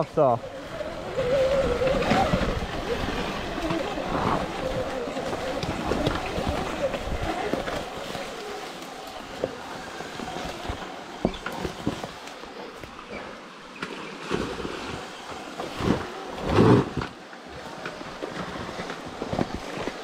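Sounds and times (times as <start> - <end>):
tyre and wind noise: 0.0 - 20.0
bike knocks and rattles: 10.4 - 13.0.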